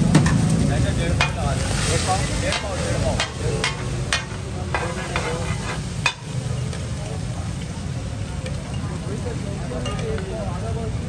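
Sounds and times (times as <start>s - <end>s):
fish sizzling on griddle: 0.0s - 11.0s
spatula scraping griddle: 0.2s - 6.4s.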